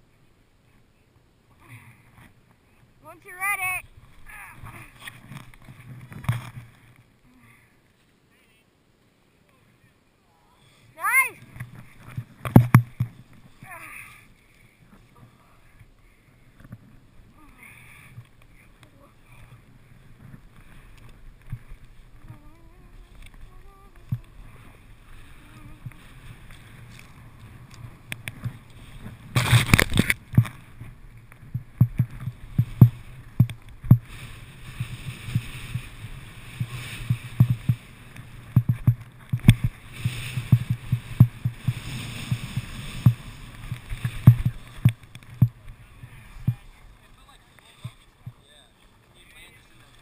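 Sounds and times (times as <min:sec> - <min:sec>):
skis scraping over snow: 0:16.4 - 0:50.0
dull knocks: 0:38.5 - 0:39.7.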